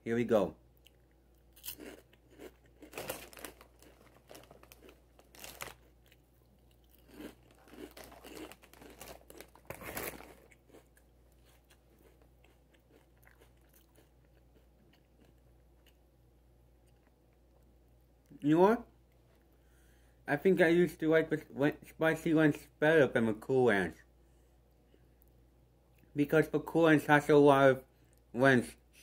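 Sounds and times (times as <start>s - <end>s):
crunching and chewing chips: 0.8s - 16.0s.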